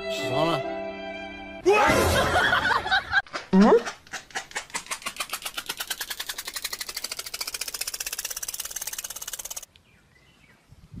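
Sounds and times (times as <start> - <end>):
rapid even rattle: 4.0 - 9.7.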